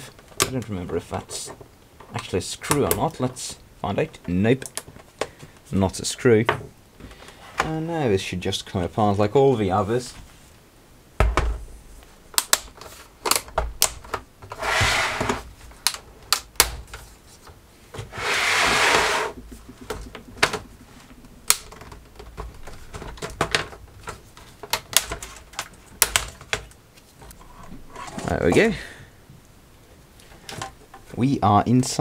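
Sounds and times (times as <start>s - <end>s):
plastic clips clicking and snapping: 12.3s - 14.2s, 23.1s - 26.8s.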